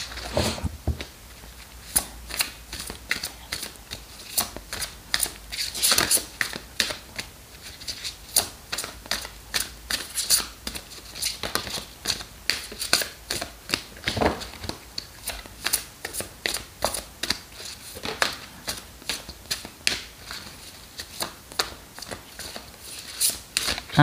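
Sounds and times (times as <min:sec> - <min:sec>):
dull thump: 0:00.3 - 0:01.1
cards being shuffled: 0:07.7 - 0:23.9.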